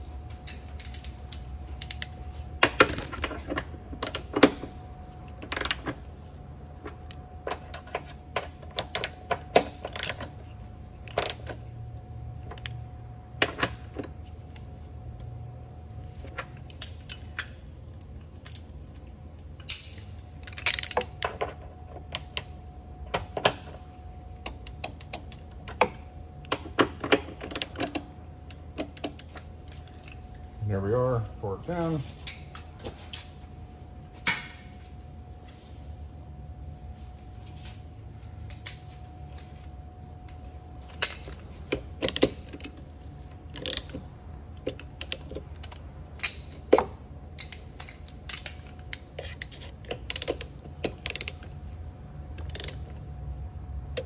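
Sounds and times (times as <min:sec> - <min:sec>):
hand tools clicking on metal: 0:52.4 - 0:52.8.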